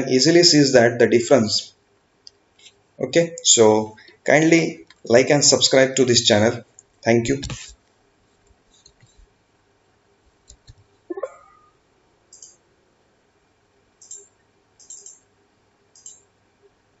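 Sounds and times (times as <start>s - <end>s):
computer mouse clicks: 10.4s - 10.9s, 12.3s - 12.6s, 14.0s - 15.3s, 15.9s - 16.3s.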